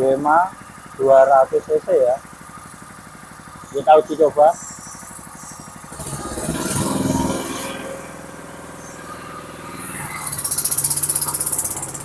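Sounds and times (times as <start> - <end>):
small petrol engine running: 0.0 - 12.0.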